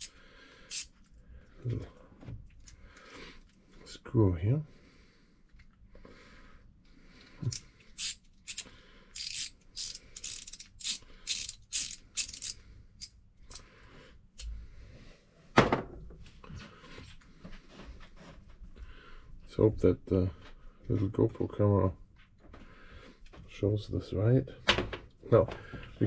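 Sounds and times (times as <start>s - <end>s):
ratchet clicking: 0.7s - 0.9s, 7.5s - 13.6s.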